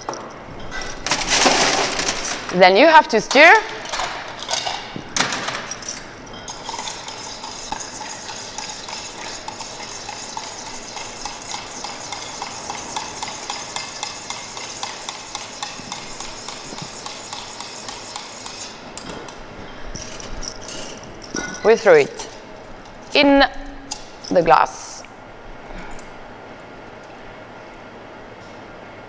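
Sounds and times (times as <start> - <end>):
ice clattering into metal tin: 1.0 - 2.5
spoon stirring ice in metal tin: 6.5 - 16.0.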